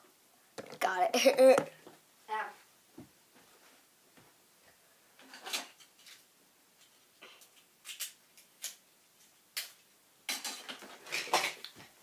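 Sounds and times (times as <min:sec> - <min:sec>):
plastic toys clicking and tapping: 0:06.8 - 0:08.8, 0:09.6 - 0:11.8.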